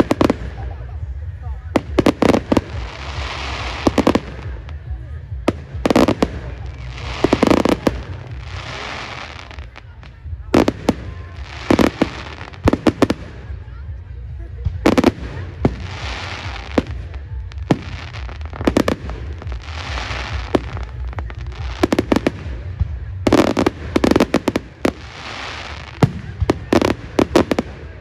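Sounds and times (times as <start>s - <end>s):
fireworks bangs: 0.0s - 28.0s
fireworks crackle: 0.0s - 28.0s.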